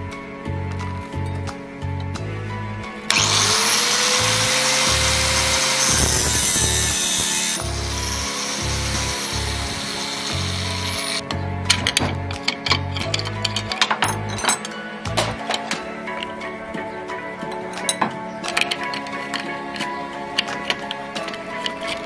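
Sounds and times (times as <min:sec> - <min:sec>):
angle grinder cutting metal rod: 0:03.1 - 0:11.2.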